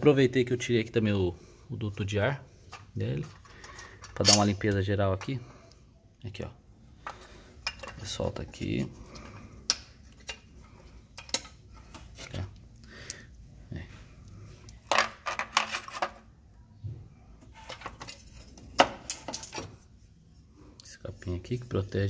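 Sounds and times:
metal bolts clinking: 0:02.7 - 0:05.4, 0:07.1 - 0:10.5, 0:11.1 - 0:12.3.

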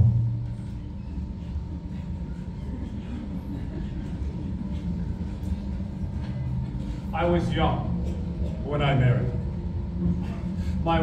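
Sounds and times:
faint steady hum: 0:00.0 - 0:11.0
low steady rumble: 0:00.0 - 0:11.0.

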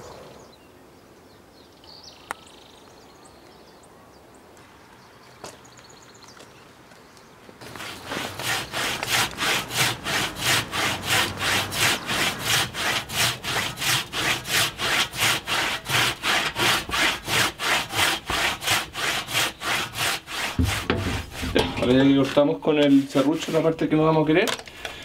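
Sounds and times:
handsaw cutting wood: 0:07.6 - 0:24.2.

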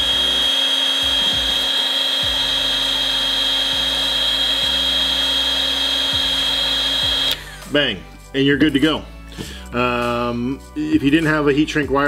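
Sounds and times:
heat gun fan whining: 0:00.0 - 0:07.7.

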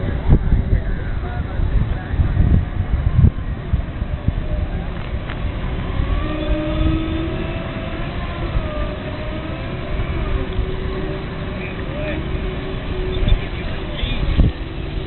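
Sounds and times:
low rumble: 0:00.0 - 0:15.0
vehicle motor whine: 0:00.0 - 0:15.0.

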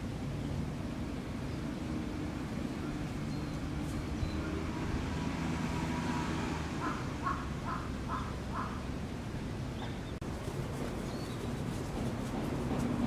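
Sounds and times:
crow cawing: 0:06.8 - 0:08.8.

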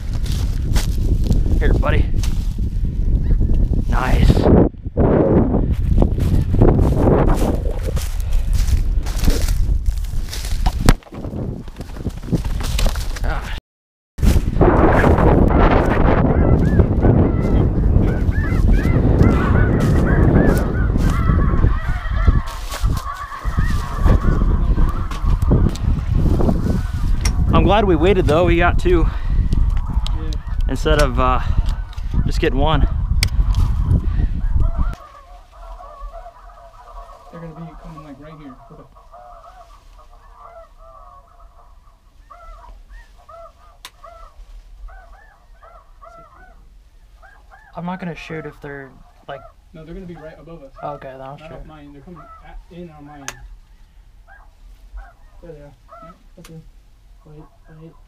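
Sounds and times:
geese honking: 0:15.5 - 0:28.1, 0:31.5 - 0:58.0.

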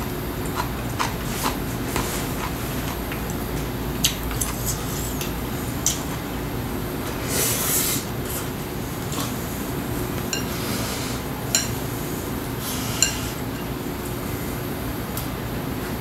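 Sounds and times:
low background hum: 0:00.0 - 0:16.0
chopsticks clinking on ceramic bowl: 0:11.5 - 0:11.8.

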